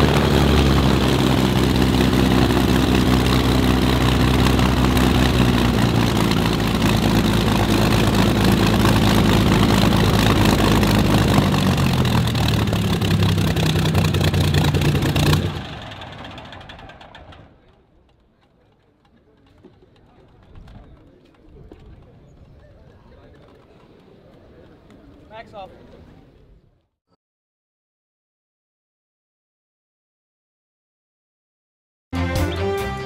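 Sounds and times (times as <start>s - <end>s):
aircraft piston engine running: 0.0s - 18.2s.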